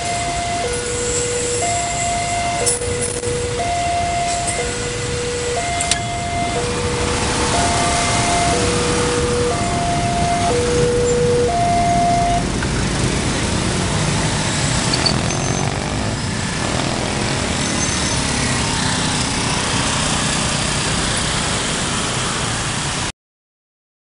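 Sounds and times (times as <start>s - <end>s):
two-tone electronic alarm beep: 0.0s - 0.8s, 1.6s - 2.9s, 3.6s - 4.9s, 5.6s - 6.7s, 7.5s - 12.5s
road traffic engine noise: 0.0s - 23.1s.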